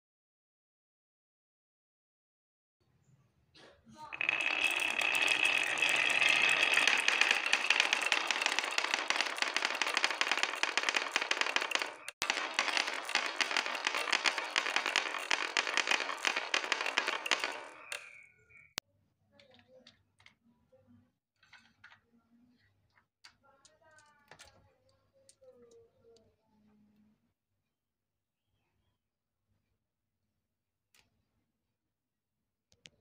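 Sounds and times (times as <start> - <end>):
glass marbles clattering down wooden track: 4.2 - 18.2.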